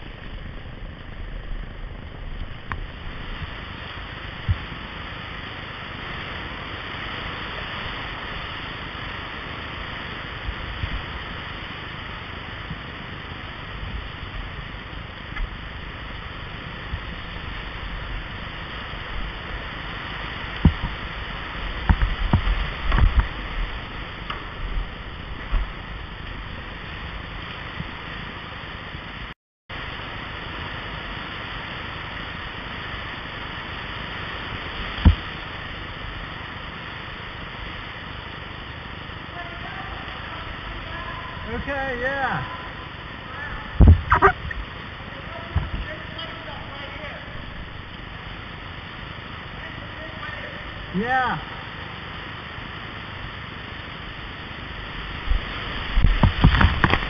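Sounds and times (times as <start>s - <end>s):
kayak knocking on rocks: 56.0s - 57.0s.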